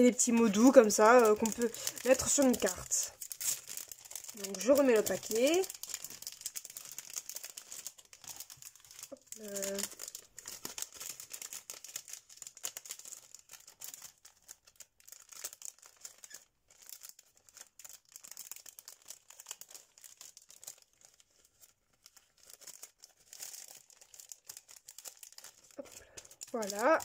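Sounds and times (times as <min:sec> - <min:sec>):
plastic packaging crinkling: 0:00.0 - 0:27.0.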